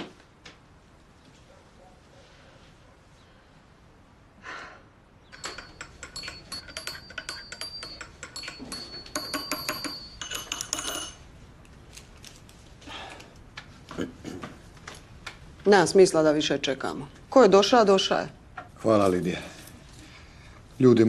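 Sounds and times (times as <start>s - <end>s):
glass clinking: 5.3s - 11.4s.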